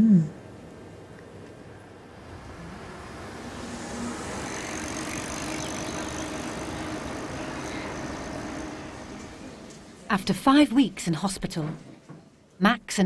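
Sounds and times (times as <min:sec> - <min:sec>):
hiss of passing cars: 0:01.6 - 0:10.1.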